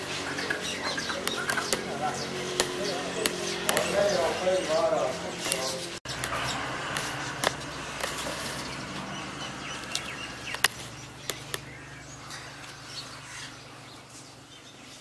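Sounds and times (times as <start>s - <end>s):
birds chirping faintly: 0.0s - 15.0s
sharp clicks: 1.1s - 4.2s, 9.8s - 11.8s.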